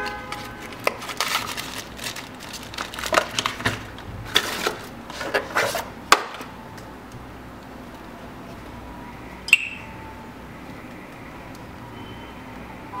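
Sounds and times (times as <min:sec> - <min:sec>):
cardboard and plastic rustling: 0:00.0 - 0:06.5.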